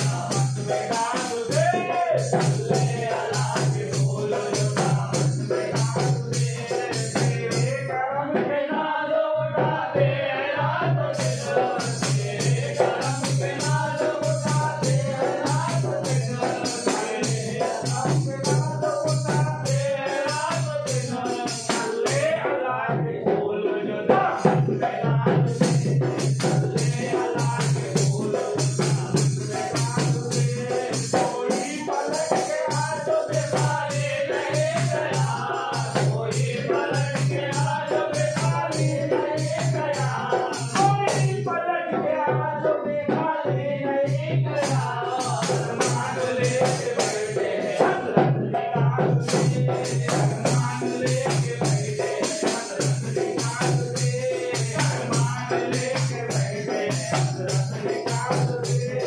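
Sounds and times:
men singing together: 0:00.0 - 0:59.0
percussive taps keeping a beat: 0:24.4 - 0:59.0.

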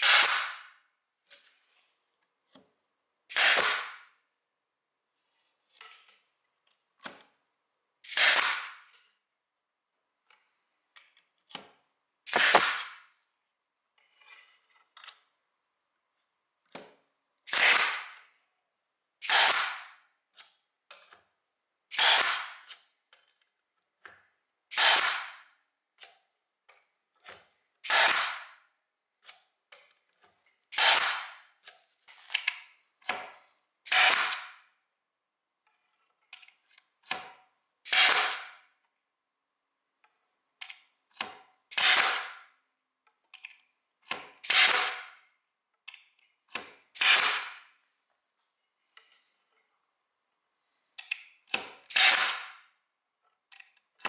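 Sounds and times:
pneumatic stapler firing: 0:00.0 - 0:00.8, 0:03.3 - 0:04.1, 0:08.0 - 0:08.9, 0:12.3 - 0:13.0, 0:17.5 - 0:18.2, 0:19.2 - 0:20.0, 0:21.9 - 0:22.7, 0:24.7 - 0:25.5, 0:27.8 - 0:28.6, 0:30.7 - 0:31.4, 0:33.9 - 0:34.6, 0:37.8 - 0:38.6, 0:41.7 - 0:42.5, 0:44.4 - 0:45.2, 0:46.9 - 0:47.6, 0:51.5 - 0:52.6.

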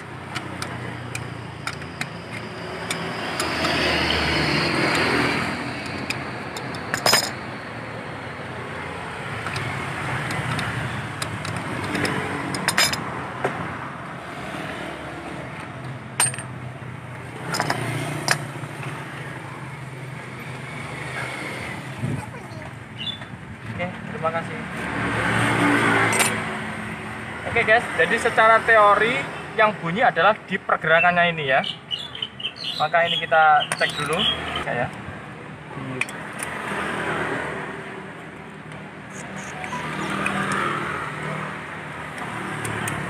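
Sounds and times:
traffic passing: 0:00.0 - 0:43.0
metal parts clinking on concrete: 0:05.8 - 0:07.4, 0:09.4 - 0:13.1, 0:16.2 - 0:16.6, 0:17.5 - 0:18.4, 0:26.1 - 0:26.4.

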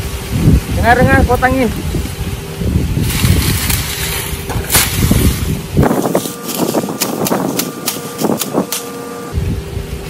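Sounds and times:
wind buffeting microphone: 0:00.0 - 0:10.0
dry leaves crackling and tearing: 0:01.6 - 0:09.2.

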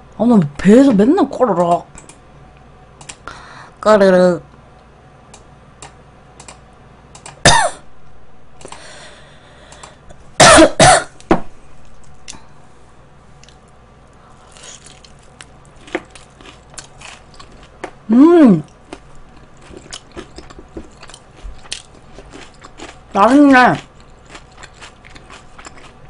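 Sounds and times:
woman coughing: 0:07.4 - 0:07.8, 0:10.4 - 0:11.2.

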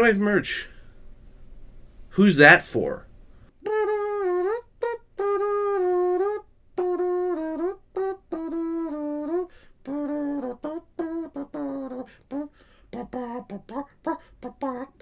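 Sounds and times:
person singing wordless tune: 0:03.5 - 0:15.0.

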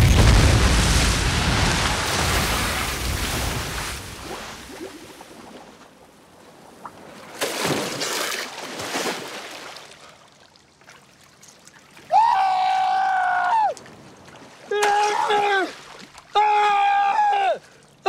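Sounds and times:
water splashing: 0:00.0 - 0:06.0, 0:06.8 - 0:12.1, 0:13.8 - 0:16.4.

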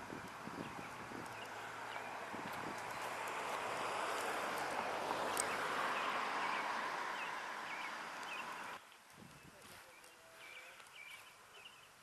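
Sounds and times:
faint bird chirps: 0:07.2 - 0:12.0.

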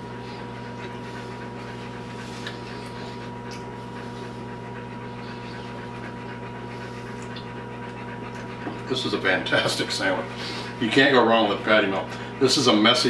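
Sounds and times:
dog panting: 0:00.0 - 0:13.0
electrical hum: 0:00.0 - 0:13.0.

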